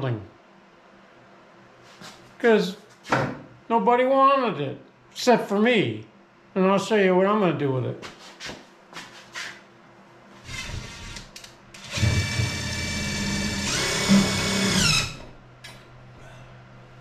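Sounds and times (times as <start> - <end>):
small electric motor running: 10.4 - 15.3.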